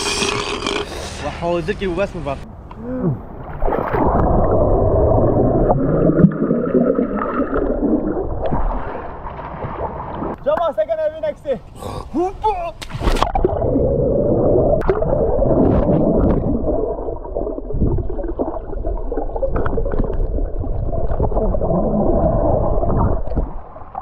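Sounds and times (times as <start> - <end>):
underwater pool water gurgling: 3.3 - 10.4, 13.1 - 24.0
air bubbles under water: 3.6 - 10.4, 13.2 - 24.0.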